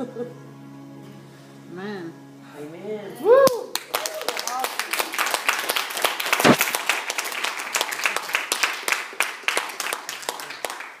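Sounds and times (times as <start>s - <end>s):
audience applauding: 3.5s - 11.0s.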